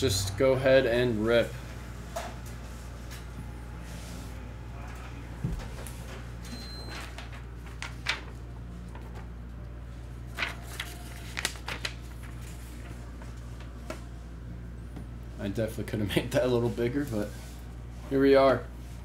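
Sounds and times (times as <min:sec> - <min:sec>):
low electrical hum: 0:00.0 - 0:19.0
paper rustling: 0:06.9 - 0:09.3, 0:10.3 - 0:13.8.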